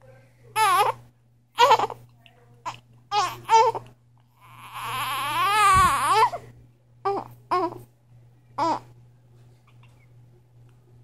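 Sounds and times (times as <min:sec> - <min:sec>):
baby crying: 0:00.6 - 0:02.0, 0:02.6 - 0:07.8, 0:08.6 - 0:08.9.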